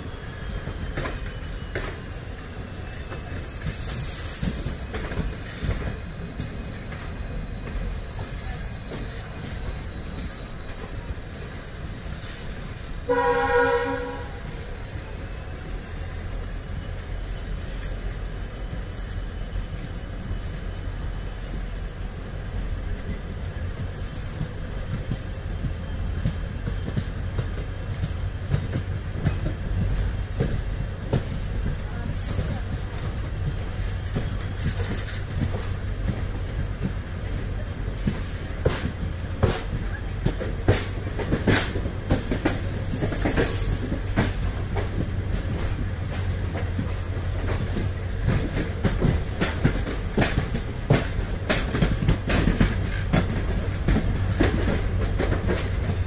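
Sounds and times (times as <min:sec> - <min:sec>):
high wheel squeals: 0:00.0 - 0:11.4
train rumble: 0:00.0 - 0:56.0
train wheels clicking over joints: 0:00.5 - 0:13.0, 0:14.5 - 0:56.0.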